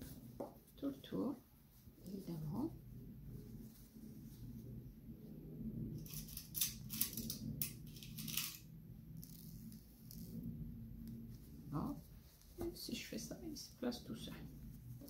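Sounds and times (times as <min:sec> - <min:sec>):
cotton fabric rustling: 0:00.0 - 0:05.3, 0:11.2 - 0:15.0
faint low hum: 0:00.0 - 0:15.0.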